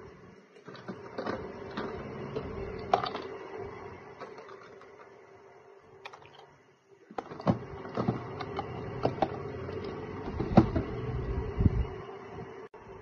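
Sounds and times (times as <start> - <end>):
plastic drawer sliding shut: 10.2 - 11.1.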